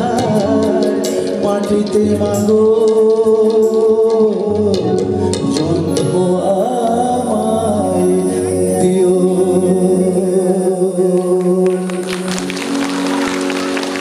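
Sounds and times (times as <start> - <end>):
live band playing: 0.0 - 14.0
audience clapping: 11.2 - 14.0.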